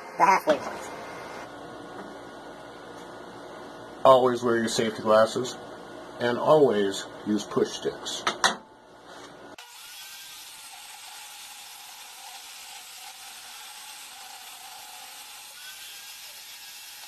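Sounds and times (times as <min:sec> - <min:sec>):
table saw running: 0:09.6 - 0:17.0.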